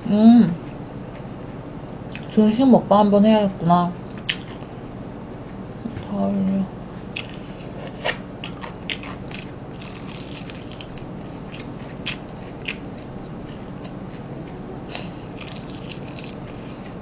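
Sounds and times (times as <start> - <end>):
fried chicken crunching while chewed: 7.1 - 16.9.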